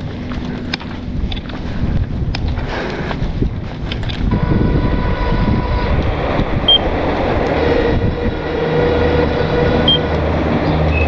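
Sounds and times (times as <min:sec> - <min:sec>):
tyre and wind rumble: 0:00.0 - 0:11.0
electric bike motor whine: 0:03.4 - 0:11.0.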